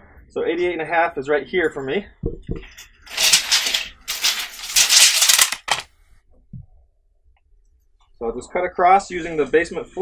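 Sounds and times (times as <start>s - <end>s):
insulation rustling: 2.5s - 5.8s
tape measure reeling in: 3.1s - 5.8s.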